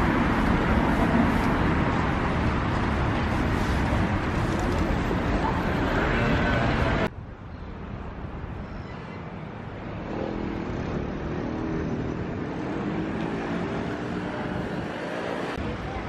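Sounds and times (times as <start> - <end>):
cars and motorcycles passing: 9.5 - 16.0.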